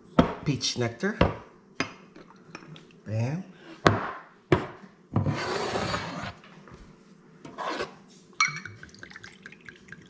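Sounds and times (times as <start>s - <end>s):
glass clink: 8.4s - 9.9s.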